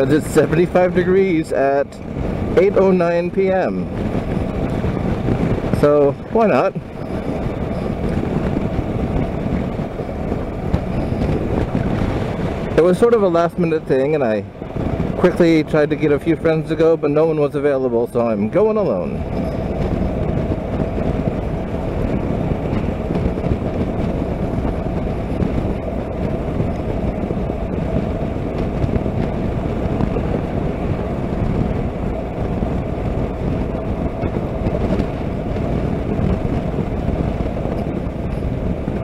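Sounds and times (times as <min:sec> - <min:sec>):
wind and road noise: 0:00.0 - 0:39.0
motorcycle engine running: 0:01.9 - 0:13.2.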